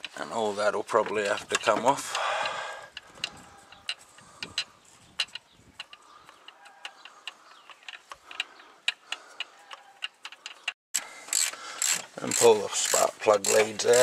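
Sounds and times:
socket ratchet clicking: 9.8 - 14.0.

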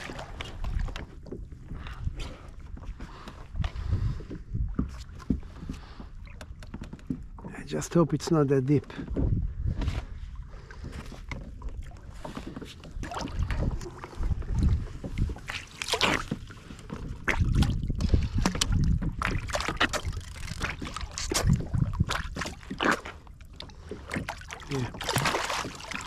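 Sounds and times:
wind rumbling on microphone: 0.0 - 6.1, 8.9 - 22.7
water splashing and sloshing: 0.0 - 26.0.

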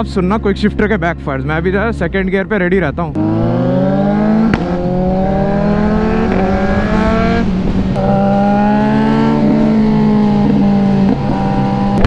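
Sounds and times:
motorcycle engine accelerating: 0.7 - 12.0
exhaust pops: 4.4 - 4.9.

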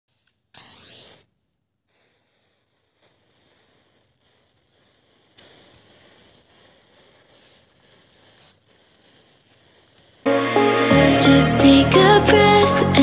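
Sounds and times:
matches fizzing and crackling: 1.9 - 10.4.

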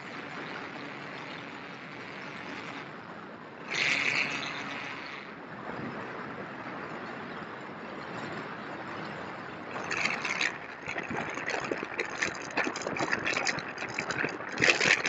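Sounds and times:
electric motor and propeller hum: 0.0 - 6.0, 9.4 - 15.0
wind rush over model plane: 0.0 - 15.0.

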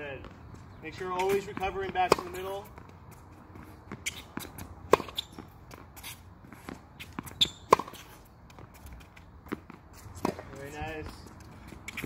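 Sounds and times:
footsteps on hard court: 0.1 - 12.0
tennis racket hitting ball: 1.2 - 2.9, 3.9 - 10.7
ball bouncing: 1.2 - 3.0.

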